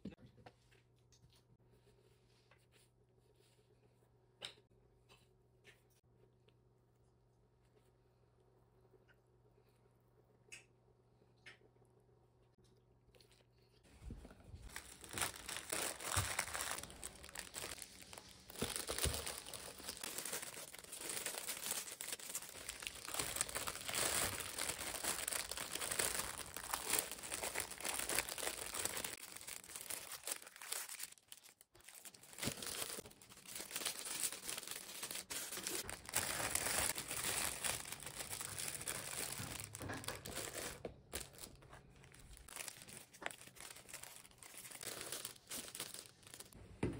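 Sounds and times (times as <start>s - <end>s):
plastic bag crinkling: 14.0s - 46.6s.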